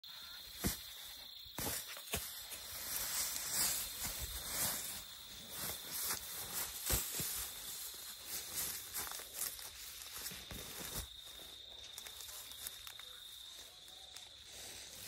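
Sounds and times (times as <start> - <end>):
elephant trampling dry grass: 1.6 - 13.2.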